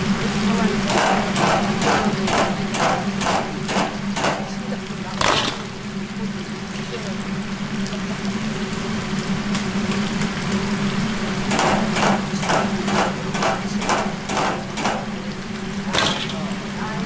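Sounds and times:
chicken sizzling in hot oil: 0.0s - 17.0s
metal strainer knocking on fryer: 0.9s - 4.6s, 11.5s - 15.2s, 15.9s - 16.5s.

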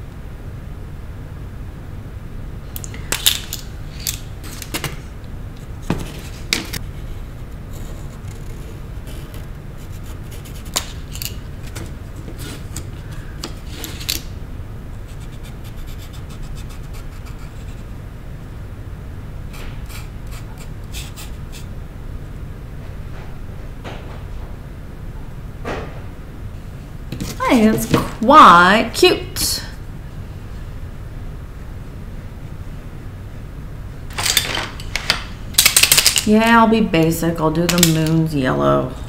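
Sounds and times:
steady low hum: 0.0s - 39.0s
painting supplies clicking and tapping: 34.2s - 36.3s, 37.7s - 38.2s.

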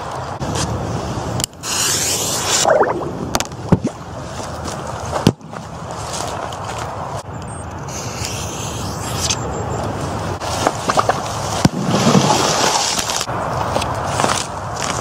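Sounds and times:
rush of noise: 0.0s - 3.7s.

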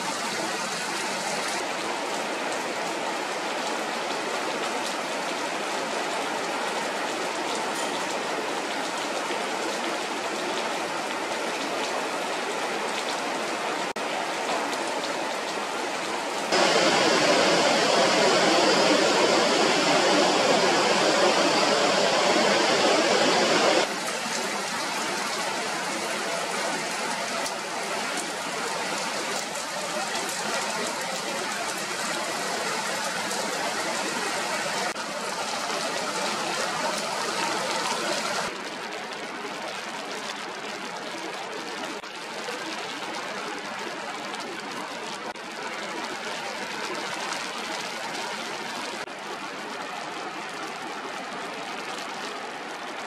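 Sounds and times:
river rapids rushing: 16.2s - 27.4s.

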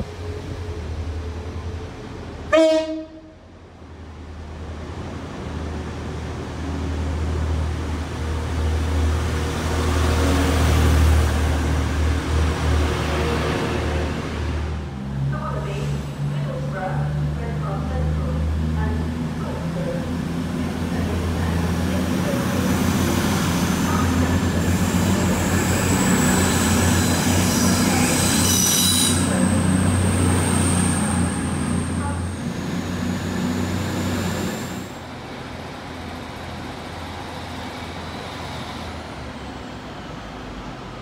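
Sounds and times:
train running gear drone: 4.2s - 41.0s
high-pitched squeal: 24.7s - 34.9s.

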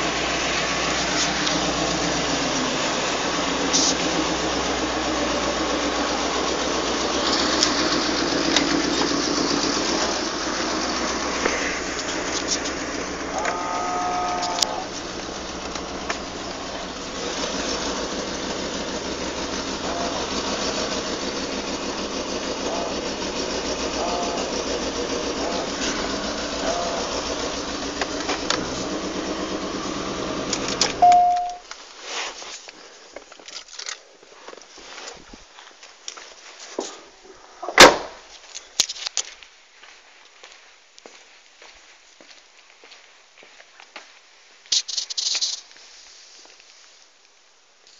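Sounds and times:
car engine idling: 0.0s - 31.7s.

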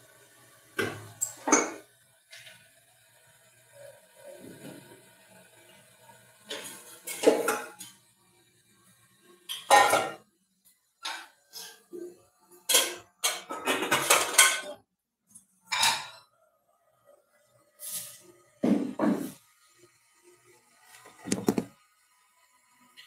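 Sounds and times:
dishes and cutlery clattering: 1.2s - 1.9s, 6.5s - 8.0s, 9.4s - 10.3s, 11.0s - 14.8s, 15.7s - 16.3s.

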